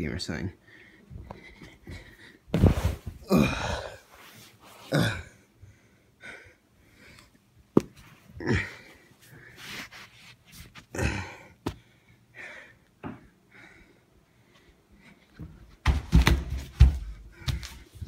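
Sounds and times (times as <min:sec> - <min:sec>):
scuffs and rustles on carpet: 0:01.1 - 0:03.2, 0:09.1 - 0:10.9.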